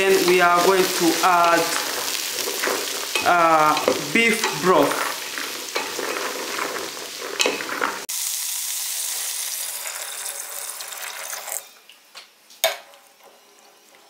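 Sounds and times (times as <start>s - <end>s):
vegetables sizzling in a pot: 0.0s - 14.0s
spatula scraping a metal pot: 0.1s - 8.1s
broth pouring into a pot: 4.8s - 11.7s.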